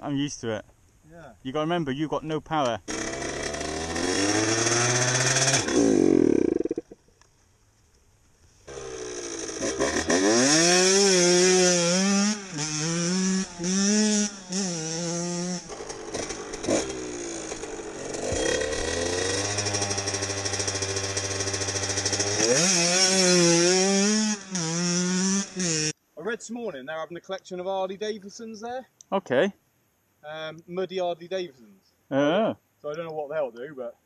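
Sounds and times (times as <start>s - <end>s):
motorcycle engine revving: 2.9s - 7.0s, 8.7s - 25.9s.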